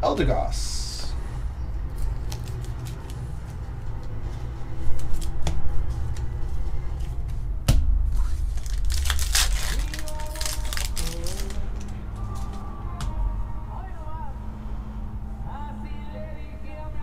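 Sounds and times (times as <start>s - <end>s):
cards rustling: 1.9s - 7.2s, 8.2s - 12.6s
foil wrapper crinkling: 2.0s - 3.6s, 8.2s - 11.9s.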